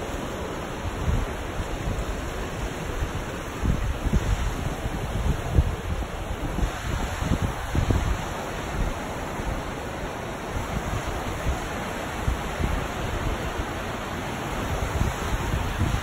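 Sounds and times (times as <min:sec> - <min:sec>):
river rapids rushing: 0:00.0 - 0:16.0
wind buffeting microphone: 0:00.0 - 0:16.0.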